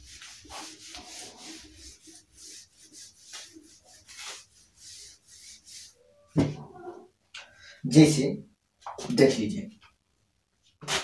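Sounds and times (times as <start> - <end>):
whiteboard being wiped: 0.0 - 7.0.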